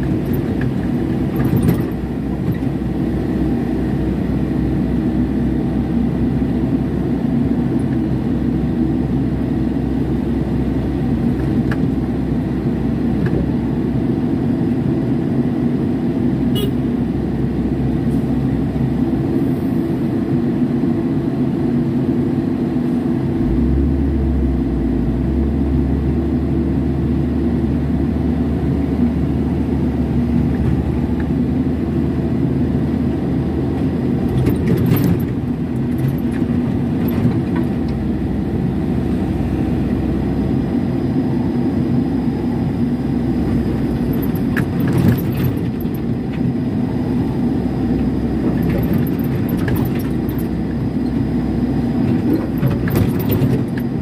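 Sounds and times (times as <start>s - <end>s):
diesel excavator engine running: 0.0s - 54.0s
deeper drone: 22.8s - 34.2s.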